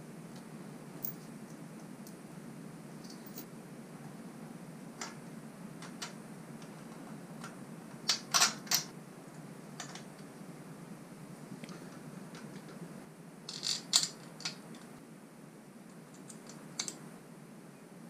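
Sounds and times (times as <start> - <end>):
faint steady hum: 0.0 - 18.0
small metal parts clinking: 3.0 - 3.5, 8.1 - 8.9, 13.5 - 14.8.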